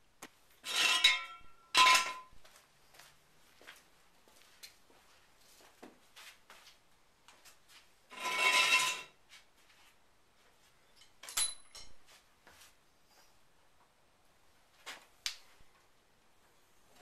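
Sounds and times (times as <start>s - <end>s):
metal tools clinking: 10.9s - 12.0s
sharp ringing clink: 11.0s - 12.0s.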